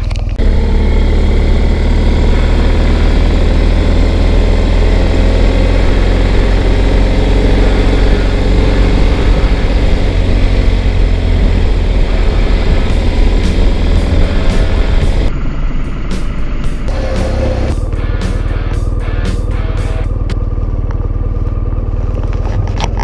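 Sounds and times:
motorcycle engine cruising: 0.0 - 23.0
wind rush: 1.8 - 16.9.

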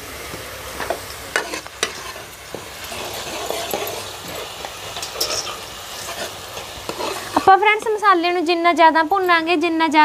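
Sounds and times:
paste sizzling in hot oil: 0.0 - 10.0
metal ladle scraping a pot: 0.8 - 7.6.

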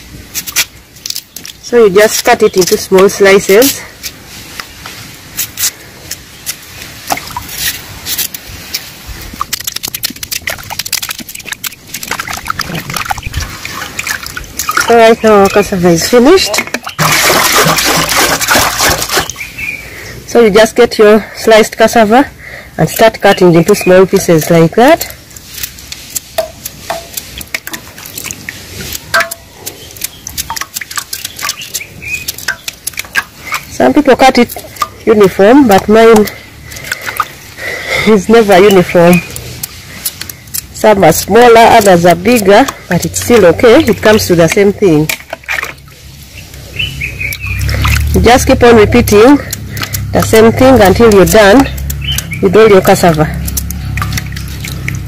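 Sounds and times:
slices splashing into water: 5.4 - 19.5, 25.4 - 37.5, 39.2 - 46.6, 47.2 - 55.0
knife cutting roots: 7.4 - 13.5, 48.8 - 55.0.

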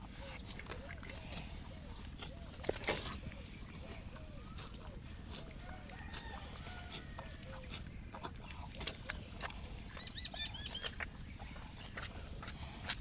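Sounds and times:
calf suckling wet smacking: 0.0 - 13.0
bird chirping: 0.1 - 13.0.

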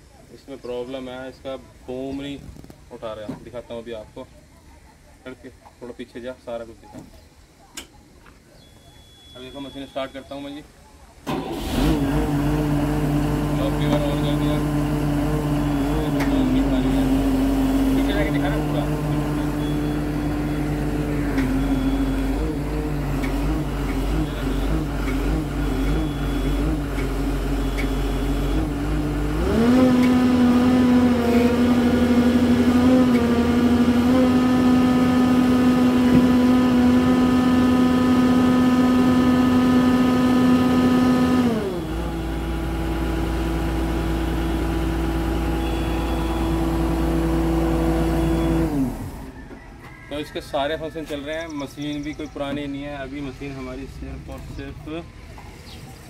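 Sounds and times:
excavator diesel engine running: 11.3 - 49.6
whining hydraulic tone: 13.8 - 49.8.

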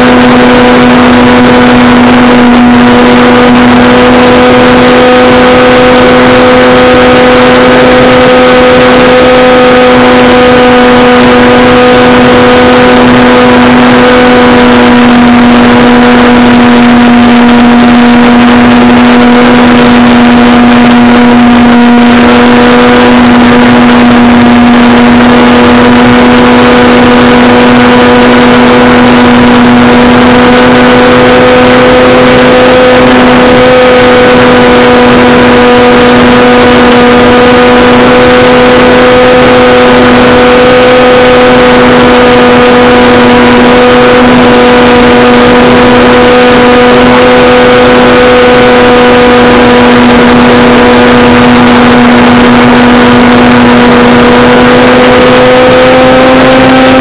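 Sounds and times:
electric motor propeller buzzing: 0.0 - 57.0.

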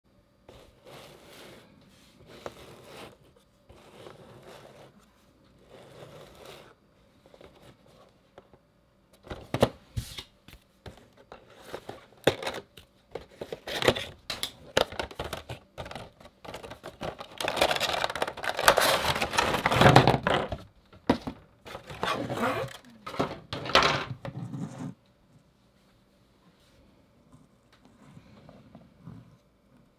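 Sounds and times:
packaging tearing and crinkling: 16.9 - 20.2.

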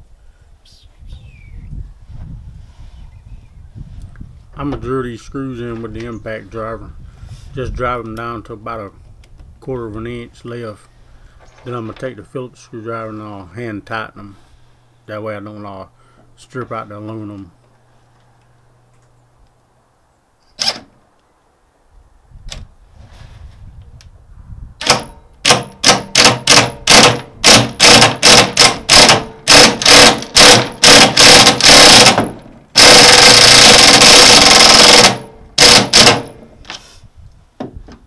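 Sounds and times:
impact driver hammering screws: 24.8 - 36.5.

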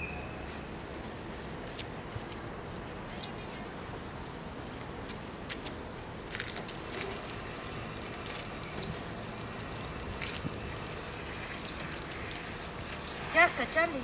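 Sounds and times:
water splashing on concrete: 6.6 - 14.0
shower water spraying: 6.7 - 14.0.

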